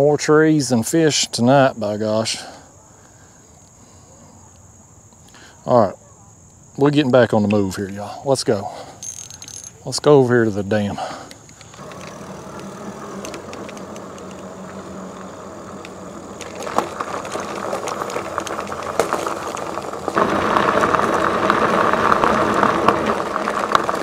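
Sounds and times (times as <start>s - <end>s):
tyres crunching over gravel: 6.8s - 24.0s
electric bike motor whine: 11.5s - 24.0s.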